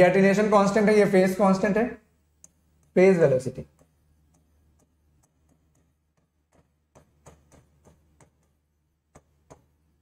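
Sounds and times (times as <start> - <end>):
pen tapping writing board: 3.6 - 9.9.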